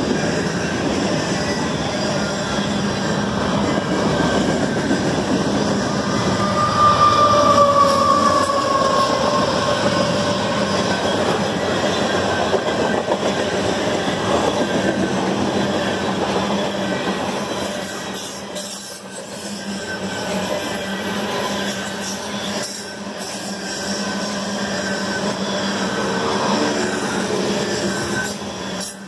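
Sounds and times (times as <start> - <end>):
train wheel squeal: 0.0 - 29.0
train wheels rumbling on rail: 0.0 - 29.0.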